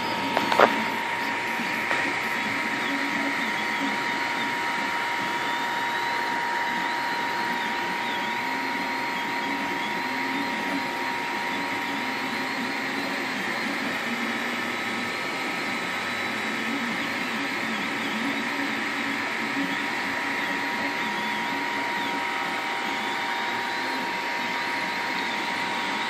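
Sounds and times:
cooling fans whirring: 0.0s - 26.0s
stepper motors whining: 0.0s - 26.0s.

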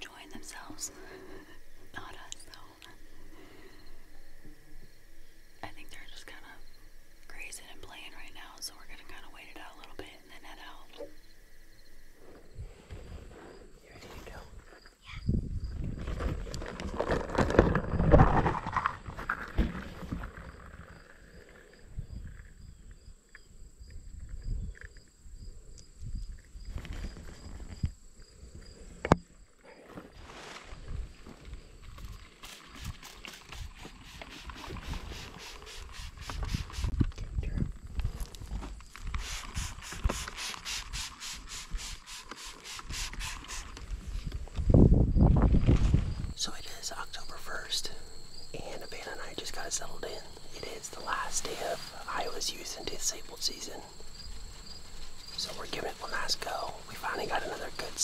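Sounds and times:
spray bottle hissing sprays: 32.4s - 37.0s, 39.1s - 43.8s.

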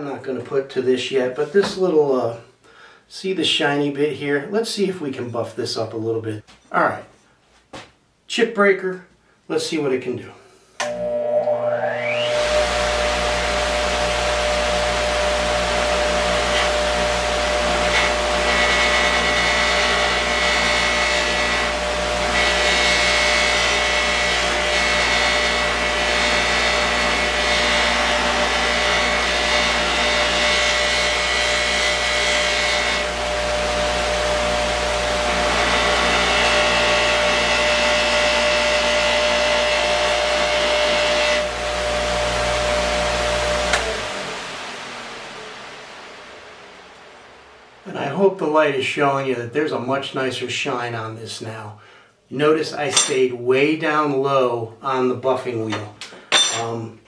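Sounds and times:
buffer motor running: 10.8s - 48.0s
metal on buffing wheel whine: 10.8s - 48.3s.

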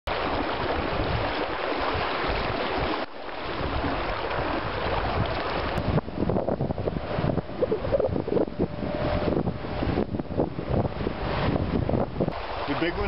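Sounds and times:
water rushing around boat: 0.1s - 13.0s
wind buffeting microphone: 0.1s - 13.0s.

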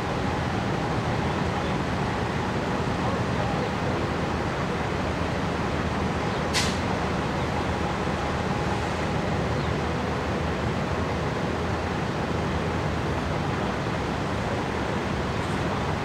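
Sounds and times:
diesel bus engines rumbling: 0.0s - 16.0s.

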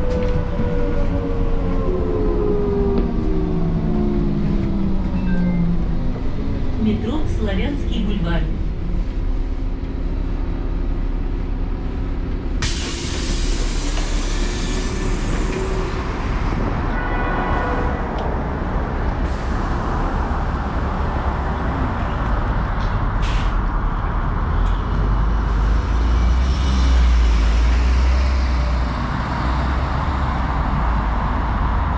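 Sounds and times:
bus engine rumbling: 0.0s - 31.9s
street noise: 0.0s - 31.9s
air hiss of bus doors: 12.6s - 15.8s, 23.2s - 23.6s.

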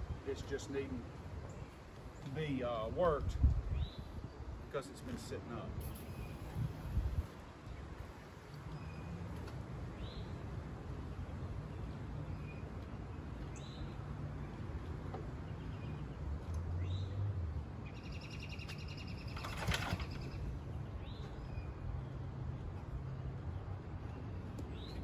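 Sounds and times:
bird buzzy trill: 5.8s - 7.2s
bird chirping: 17.8s - 21.8s.

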